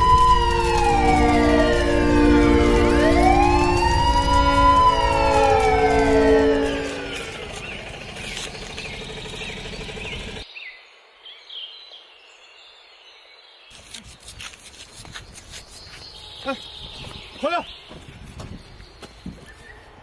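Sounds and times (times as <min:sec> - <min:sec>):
police siren winding down: 0:00.0 - 0:10.4
bird chirps: 0:07.0 - 0:13.9, 0:15.1 - 0:20.0.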